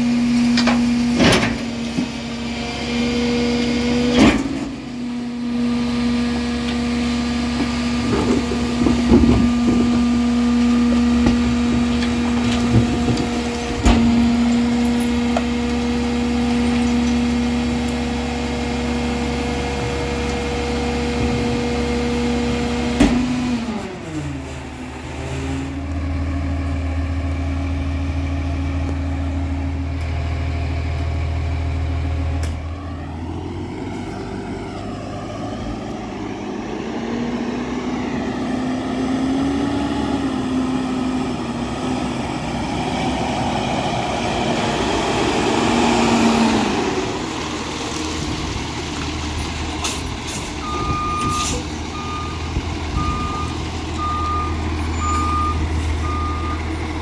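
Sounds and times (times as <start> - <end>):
garbage truck diesel engine: 0.0 - 57.0
metal clunks from hopper: 0.4 - 2.2, 4.0 - 5.0, 10.9 - 15.5, 22.9 - 23.4.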